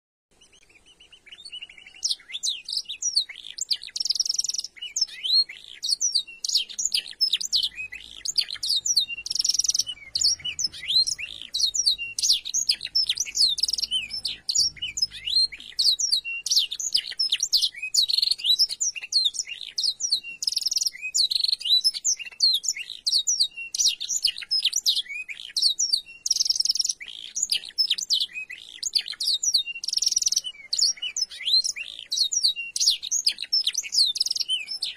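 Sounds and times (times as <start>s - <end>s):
canary singing chirps and trills: 0.3s - 34.9s.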